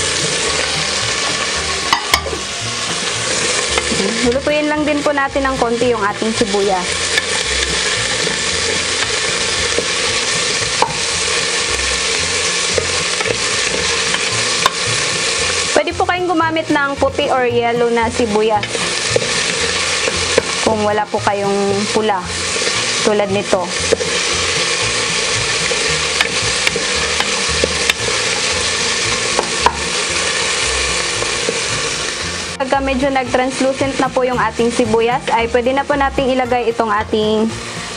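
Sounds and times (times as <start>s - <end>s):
onion sizzling in hot oil: 0.0s - 37.9s
wooden spatula scraping pot: 5.2s - 15.8s, 17.9s - 32.6s.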